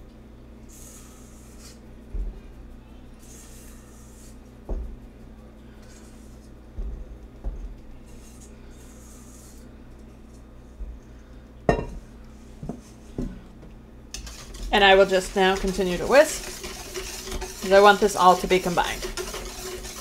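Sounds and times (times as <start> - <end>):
metal bowl clanking on counter: 11.7 - 12.0.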